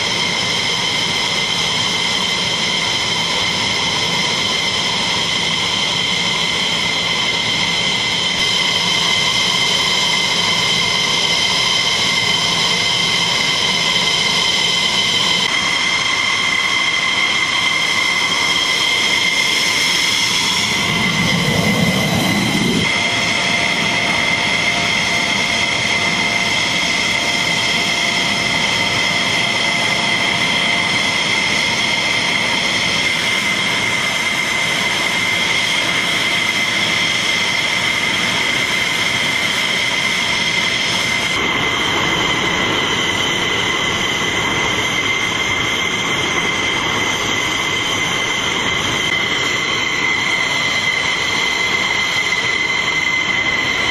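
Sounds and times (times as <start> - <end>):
low rumble of passing jet: 0.0 - 35.0
jet engine turbine whine: 0.0 - 53.9.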